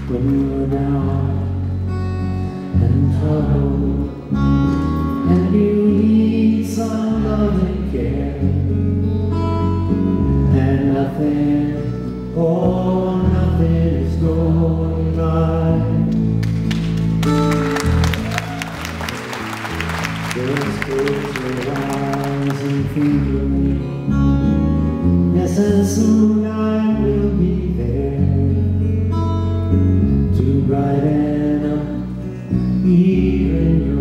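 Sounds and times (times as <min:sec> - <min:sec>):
man singing: 0:00.0 - 0:01.8, 0:02.4 - 0:08.9, 0:10.3 - 0:16.4, 0:20.1 - 0:24.2, 0:25.2 - 0:29.3, 0:30.2 - 0:34.0
acoustic guitar: 0:00.0 - 0:34.0
deep bass line: 0:00.0 - 0:34.0.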